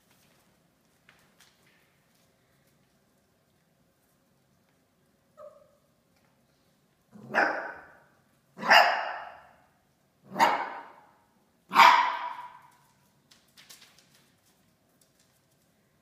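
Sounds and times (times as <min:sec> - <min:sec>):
dog barking: 0:07.2 - 0:08.0, 0:08.6 - 0:09.6, 0:10.3 - 0:11.1, 0:11.7 - 0:12.7.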